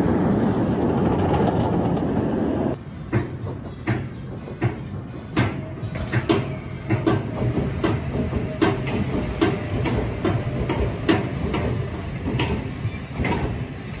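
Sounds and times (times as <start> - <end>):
roller coaster train rolling: 0.0 - 14.0
metallic clanks and knocks: 3.1 - 13.6.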